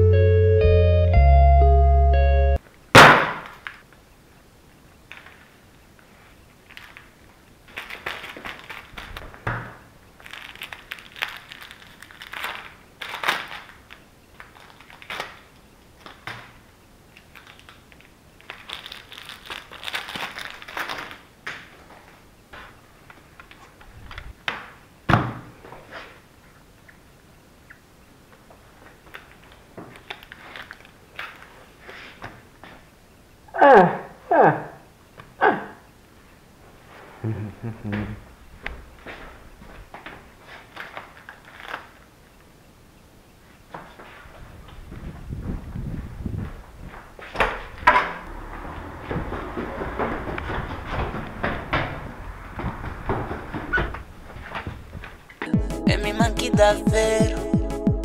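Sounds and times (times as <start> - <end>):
foil wrapper crinkling: 6.5 - 9.4, 10.1 - 21.3, 29.1 - 31.6, 40.4 - 42.1.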